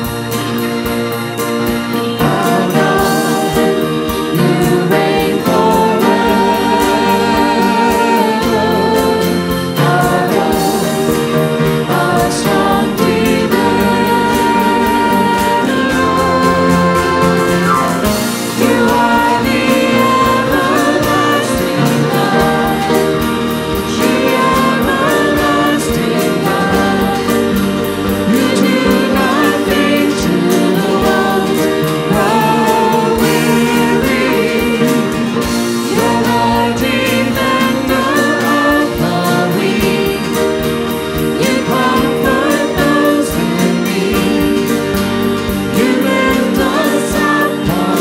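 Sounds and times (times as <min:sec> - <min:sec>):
worship band music with singing: 0:00.0 - 0:48.0.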